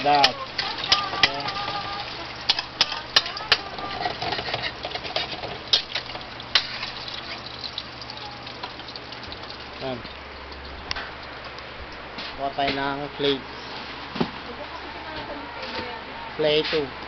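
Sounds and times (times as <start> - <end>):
eggs sizzling in hot oil: 0.0 - 12.1.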